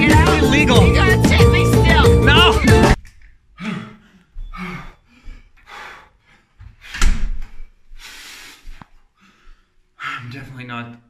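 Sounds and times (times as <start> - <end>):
man panting heavily: 3.6 - 7.0, 7.9 - 10.3
wooden door shutting: 6.9 - 7.6.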